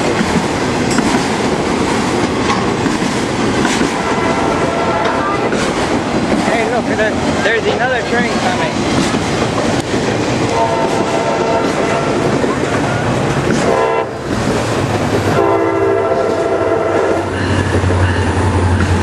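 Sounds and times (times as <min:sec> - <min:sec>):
freight train rumble and wheel clatter: 0:00.0 - 0:19.0
locomotive engine drone: 0:00.0 - 0:19.0
multi-chime train horn: 0:15.4 - 0:17.3.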